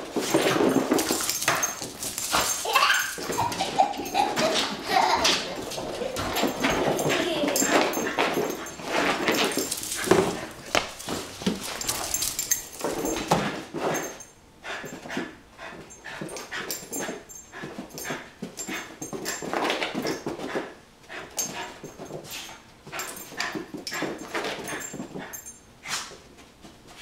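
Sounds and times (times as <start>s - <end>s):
knocks and scrabbles: 0.0s - 14.2s
dog whining and panting: 0.4s - 10.7s.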